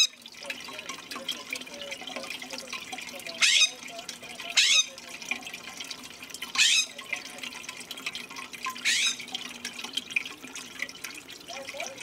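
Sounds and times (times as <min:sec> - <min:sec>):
water trickling in fountain: 0:00.0 - 0:12.0
harsh bird calls: 0:03.4 - 0:03.8, 0:04.6 - 0:05.0, 0:06.6 - 0:07.0, 0:08.8 - 0:09.3.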